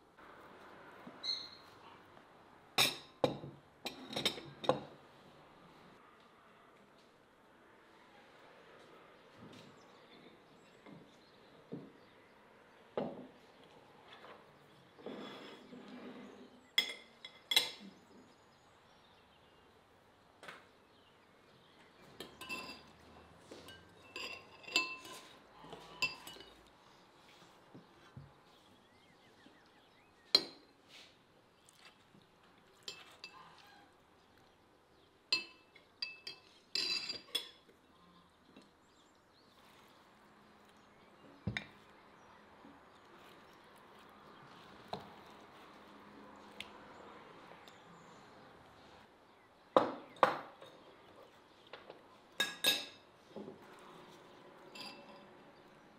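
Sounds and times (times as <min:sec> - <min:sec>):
metal utensils clinking on dishes: 0:02.8 - 0:05.0, 0:16.8 - 0:18.0, 0:22.0 - 0:26.7, 0:35.3 - 0:37.7, 0:52.4 - 0:53.1, 0:54.6 - 0:55.6.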